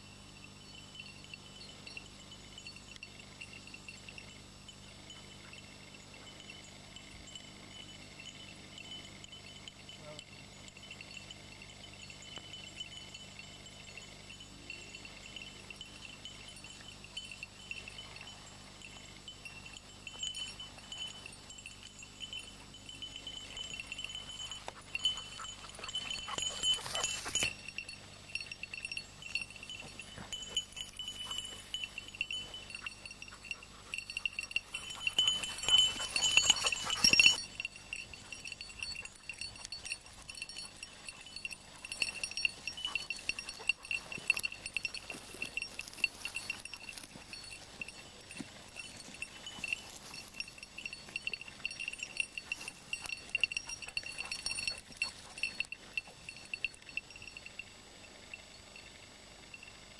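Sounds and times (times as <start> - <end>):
collar bell jingling: 0.0 - 59.9
rustling through scrub: 16.6 - 56.9.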